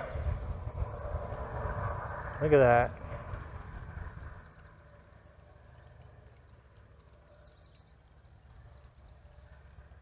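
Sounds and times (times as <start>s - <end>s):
bird chirping: 0.0s - 0.8s, 4.1s - 10.0s
faint low rumble: 0.0s - 10.0s.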